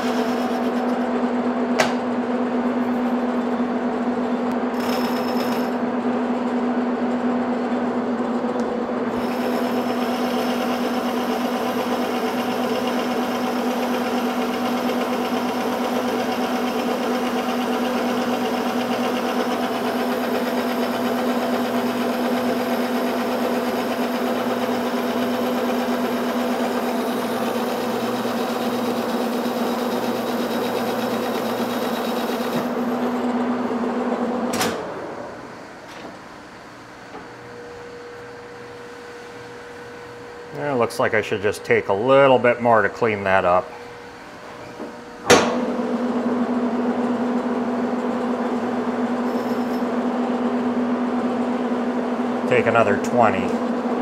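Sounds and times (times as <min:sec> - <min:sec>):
lathe switch knock: 0:01.8 - 0:02.1, 0:45.2 - 0:45.6
lathe humming: 0:08.8 - 0:34.3.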